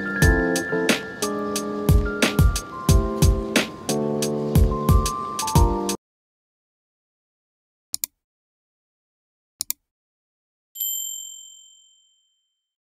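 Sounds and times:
bright bell ding: 10.8 - 12.6.

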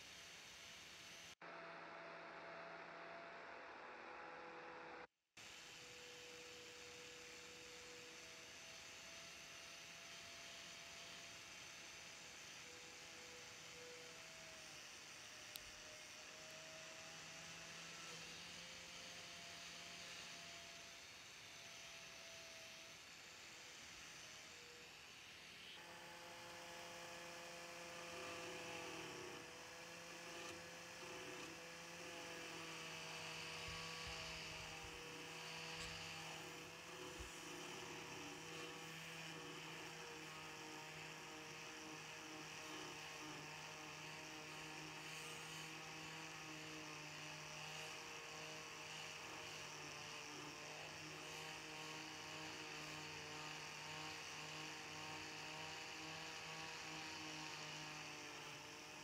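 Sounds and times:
angle grinder motor whine: 0.0 - 59.0
grinding disc on steel: 25.8 - 46.4.

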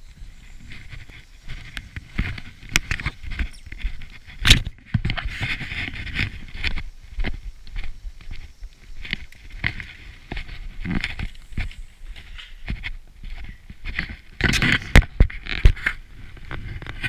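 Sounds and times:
footsteps on concrete: 5.0 - 16.6.

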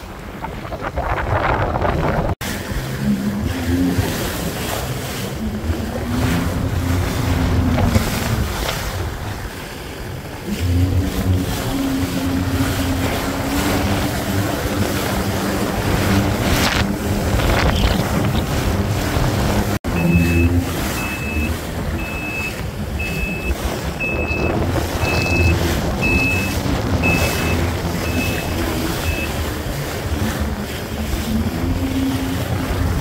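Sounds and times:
wind on microphone: 0.0 - 9.6, 11.0 - 19.8, 20.7 - 33.0
jet ski engine running: 0.0 - 33.0
water splashing: 0.0 - 33.0.

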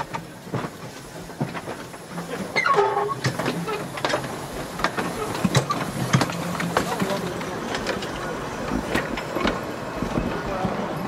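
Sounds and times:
steam locomotive clanking on track: 0.0 - 11.0.

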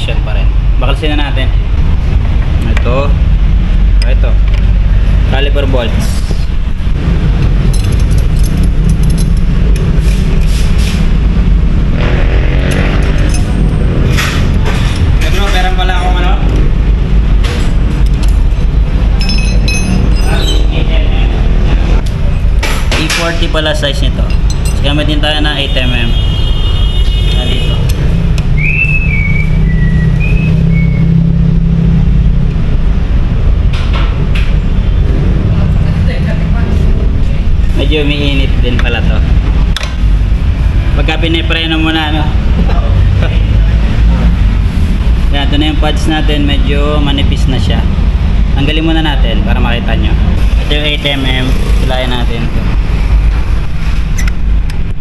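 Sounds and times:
loud low rumble: 0.0 - 22.7, 27.3 - 55.0
low rumble: 0.0 - 22.7
metallic clicks: 7.6 - 9.9
wrench squeaking: 7.6 - 10.0, 19.2 - 20.8.

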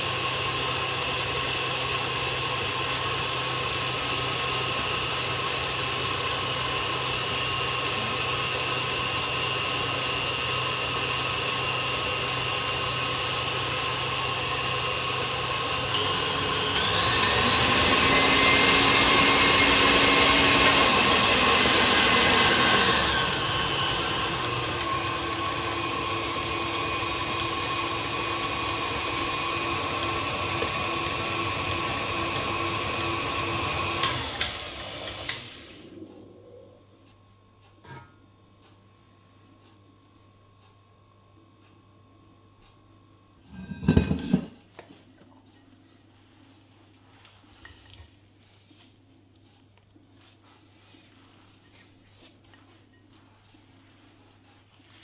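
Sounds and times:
whisk beating egg whites: 0.0 - 35.5
stand mixer motor whining: 0.0 - 35.9.

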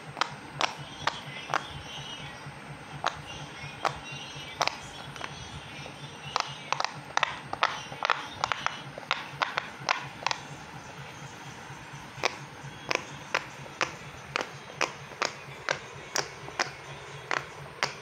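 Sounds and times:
fidget toy bubbles popping: 0.2 - 1.7, 3.0 - 5.4, 6.2 - 10.5, 12.2 - 18.0.

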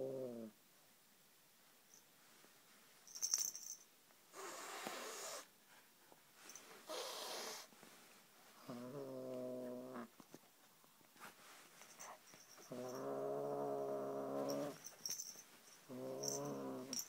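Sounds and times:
kitten growling low: 0.0 - 0.6, 8.6 - 10.1, 12.7 - 14.8, 15.9 - 17.0.

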